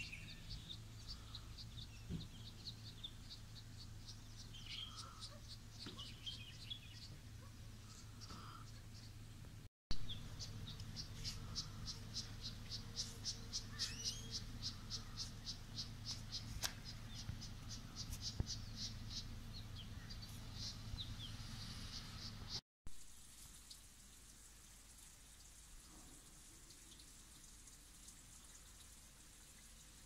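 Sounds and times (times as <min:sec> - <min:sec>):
faint bird chirps: 0:00.0 - 0:09.2, 0:09.9 - 0:22.6
low steady hum: 0:00.0 - 0:22.6.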